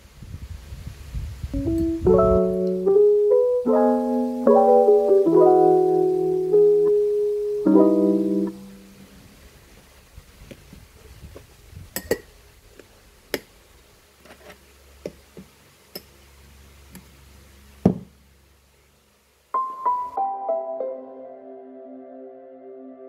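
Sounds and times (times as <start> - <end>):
soft piano music: 1.6 - 9.1, 19.5 - 23.0.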